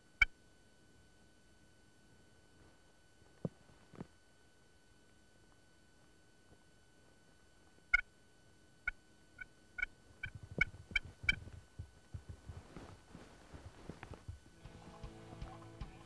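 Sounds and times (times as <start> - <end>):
soft rustling: 2.5 - 4.2, 10.0 - 14.8.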